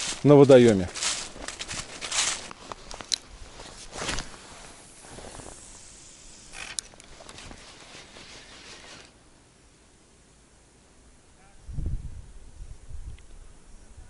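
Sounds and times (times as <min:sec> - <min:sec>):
fishing line running off reel: 0:05.5 - 0:09.2.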